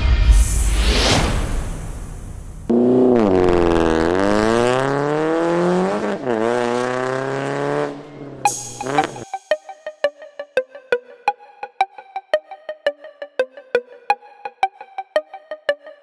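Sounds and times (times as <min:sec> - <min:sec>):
car engine accelerating: 0:02.2 - 0:09.2.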